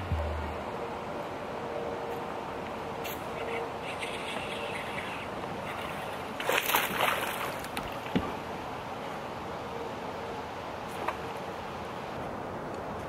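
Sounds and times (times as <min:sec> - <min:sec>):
light wind: 0:00.0 - 0:13.0
water lapping: 0:03.4 - 0:08.1.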